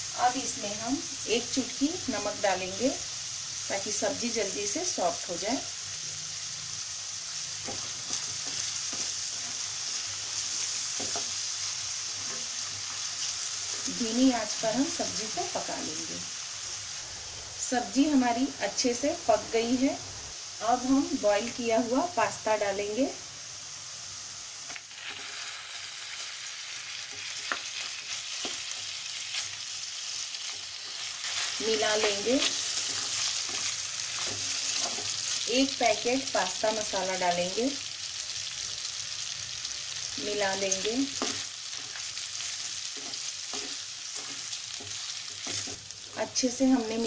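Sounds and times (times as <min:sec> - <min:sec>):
vegetables sizzling in oil: 0:00.0 - 0:47.0
spatula scraping and tapping pan: 0:07.6 - 0:09.6, 0:11.0 - 0:11.4, 0:27.1 - 0:29.5, 0:40.8 - 0:42.1, 0:42.9 - 0:45.9
spatula scraping pan: 0:30.4 - 0:35.5, 0:41.1 - 0:45.9.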